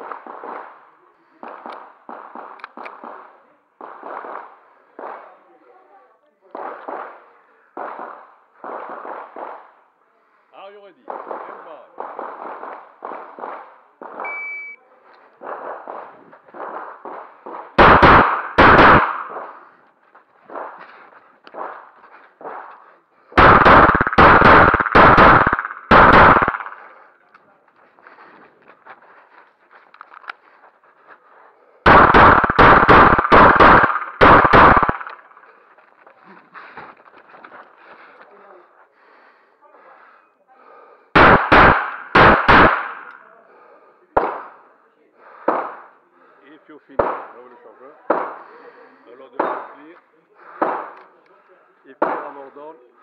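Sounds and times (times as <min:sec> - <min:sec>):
pistol shots: 0:01.4 - 0:05.4, 0:07.8 - 0:09.8, 0:11.1 - 0:14.8, 0:15.4 - 0:19.8, 0:20.5 - 0:27.1, 0:31.8 - 0:35.5, 0:41.2 - 0:43.2, 0:44.2 - 0:44.6, 0:45.4 - 0:45.9, 0:47.0 - 0:47.4, 0:48.1 - 0:48.4, 0:49.4 - 0:49.8, 0:50.6 - 0:51.1, 0:52.0 - 0:52.4
high electronic beep: 0:14.2 - 0:14.8
loud sharp bangs: 0:15.4 - 0:19.6, 0:20.4 - 0:27.0, 0:31.8 - 0:35.4, 0:41.2 - 0:43.1, 0:45.4 - 0:45.9, 0:47.0 - 0:47.4, 0:50.6 - 0:51.0.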